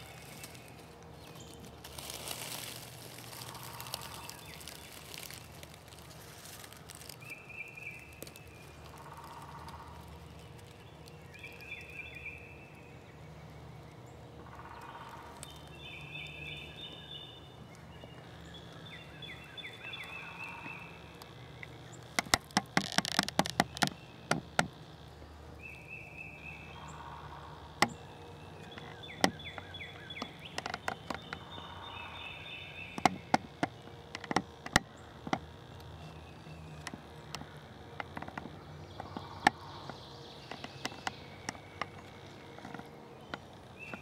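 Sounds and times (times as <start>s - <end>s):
birds chirping: 0.0s - 44.0s
sharp clicks and taps: 21.2s - 24.8s, 33.0s - 35.9s.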